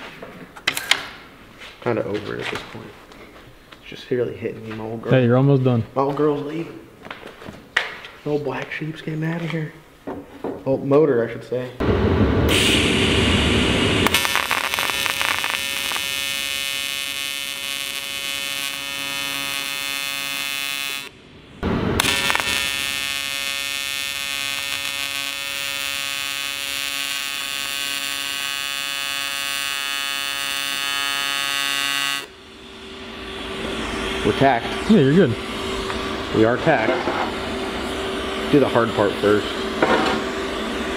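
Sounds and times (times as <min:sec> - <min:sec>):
welding arc buzzing: 0:12.5 - 0:40.9.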